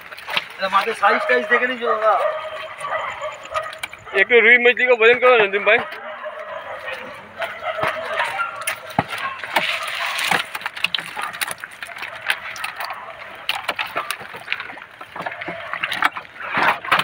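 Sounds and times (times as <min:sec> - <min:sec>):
plastic tub knocking and scraping: 0:05.1 - 0:12.9.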